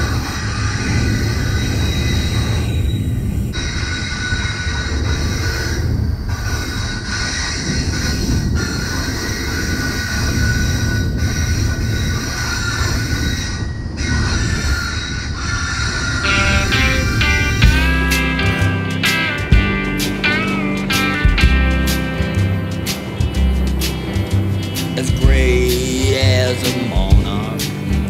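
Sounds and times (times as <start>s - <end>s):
wheels squealing on rails: 0.0s - 17.3s
freight train rumbling: 16.2s - 28.0s.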